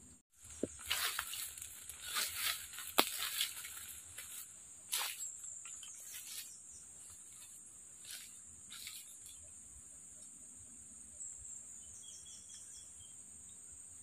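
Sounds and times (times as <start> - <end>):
footsteps crunching on dry leaves: 0.4 - 9.4
high-pitched insect drone: 0.4 - 14.0.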